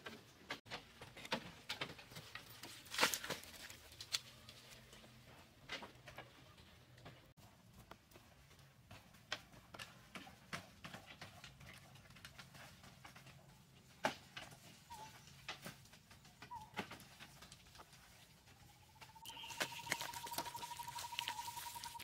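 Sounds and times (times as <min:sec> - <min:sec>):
bird chirps: 0:18.7 - 0:22.0.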